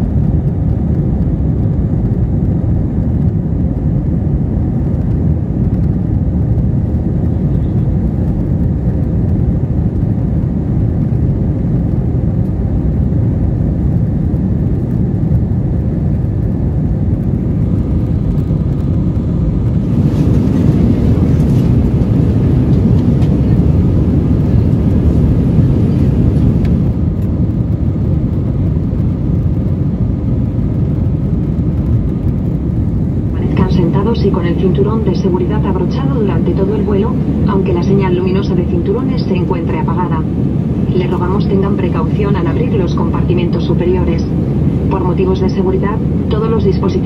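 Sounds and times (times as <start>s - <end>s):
airplane cabin engine and airflow noise: 0.0s - 47.0s.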